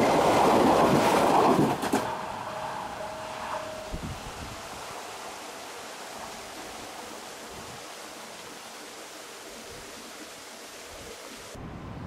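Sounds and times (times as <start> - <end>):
train rushing on track: 0.0 - 8.2.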